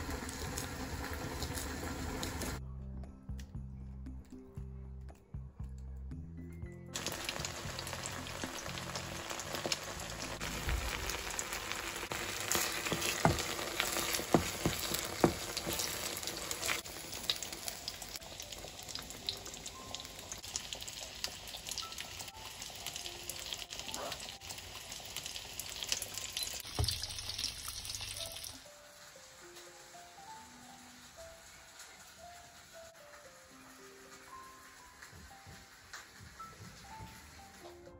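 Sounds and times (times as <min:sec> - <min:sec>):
sauce sizzling in a frying pan: 0:00.0 - 0:02.6, 0:07.0 - 0:37.6
wooden spoon stirring: 0:12.4 - 0:16.7.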